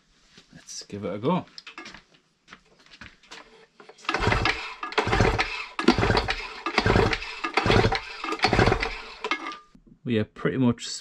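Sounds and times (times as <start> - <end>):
engine cranked with pull-starter: 3.9 - 9.6.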